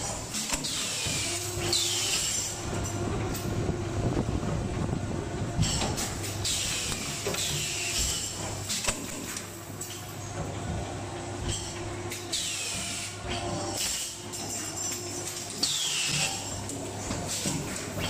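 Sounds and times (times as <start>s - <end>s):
welding machine hum: 0.0s - 18.0s.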